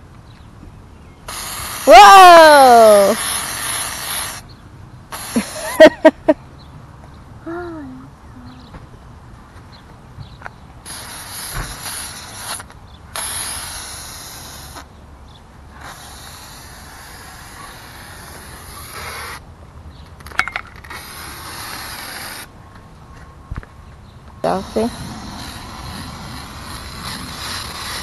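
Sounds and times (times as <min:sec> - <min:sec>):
aerosol can spraying: 0:01.3 - 0:04.4, 0:05.1 - 0:05.8, 0:10.9 - 0:14.8, 0:15.8 - 0:19.4, 0:24.5 - 0:28.0.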